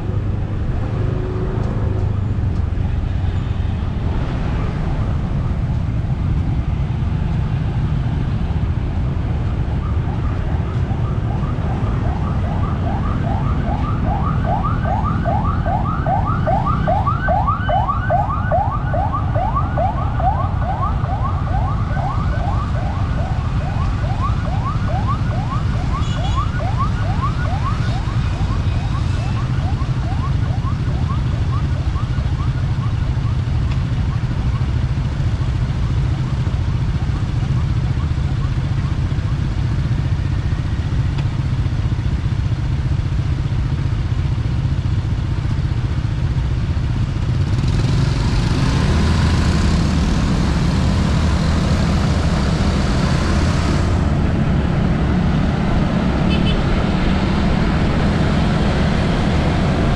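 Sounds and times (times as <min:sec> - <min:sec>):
street traffic rumble: 0:00.0 - 0:59.9
emergency siren yelping: 0:09.2 - 0:34.4.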